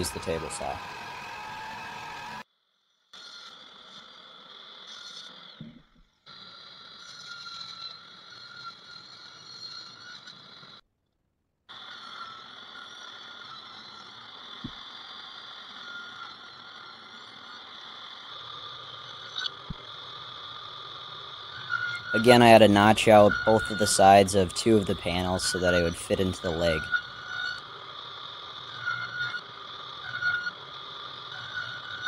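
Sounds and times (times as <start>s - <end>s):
power saw cutting plywood: 0.0s - 2.4s, 19.7s - 32.0s.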